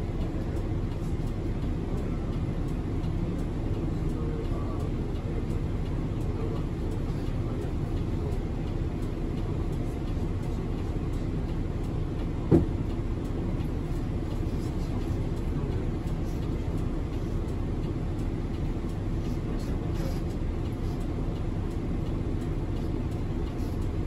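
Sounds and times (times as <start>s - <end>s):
bus engine and road rumble: 0.0s - 24.0s
short thump: 12.5s - 12.8s.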